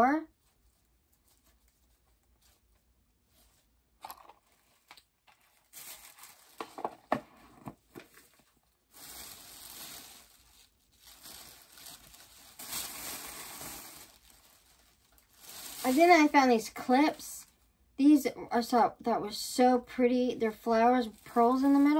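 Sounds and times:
plastic bag rustling: 0.3s - 17.3s, 20.5s - 21.9s.

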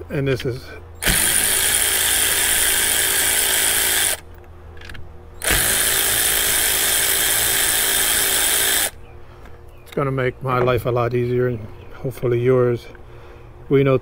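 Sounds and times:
electric ratchet motor spinning: 1.0s - 4.3s, 5.4s - 9.0s.

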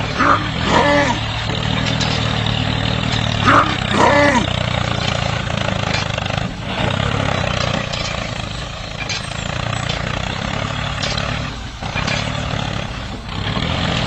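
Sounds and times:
tractor engine running: 0.0s - 14.0s.

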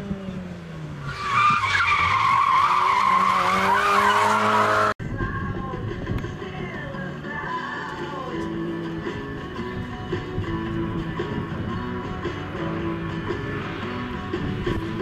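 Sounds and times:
car engine revving: 0.0s - 5.0s
tyre squeal: 1.0s - 4.9s.

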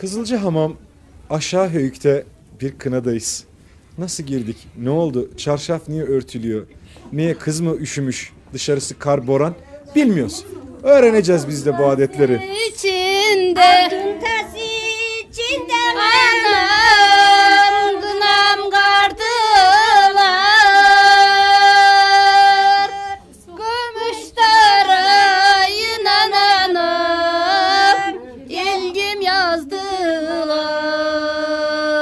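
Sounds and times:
women singing folk song: 11.5s - 32.0s.

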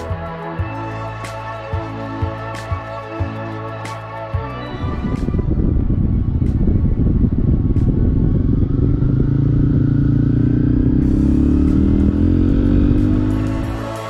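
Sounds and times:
motorcycle engine accelerating: 4.9s - 14.0s.

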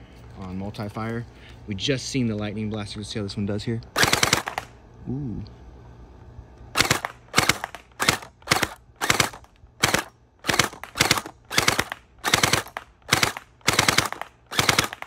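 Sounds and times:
gel blaster firing bursts: 4.0s - 4.6s, 6.8s - 15.0s.

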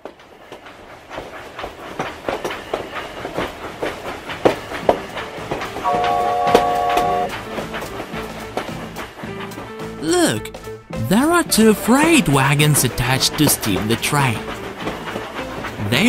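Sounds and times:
train wheels clicking over rail joints: 0.0s - 16.0s
multi-note train whistle: 5.8s - 7.4s.

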